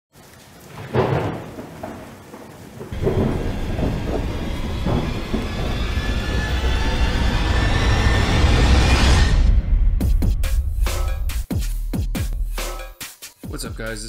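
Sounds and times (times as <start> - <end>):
rain: 0.1 - 9.4
low rumble of thunder: 0.6 - 10.0
thunderclap: 0.6 - 11.0
eerie music: 3.0 - 11.4.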